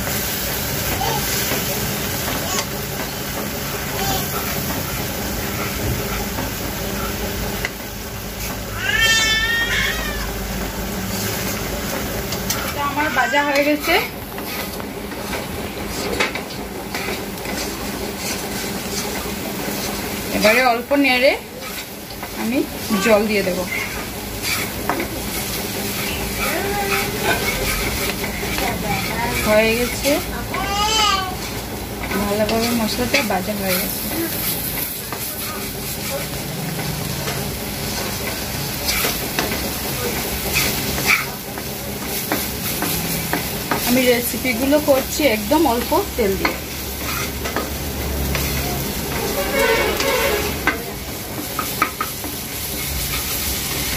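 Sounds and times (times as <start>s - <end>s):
spice paste sizzling: 0.0s - 53.9s
wooden spatula scraping pan: 11.0s - 53.9s.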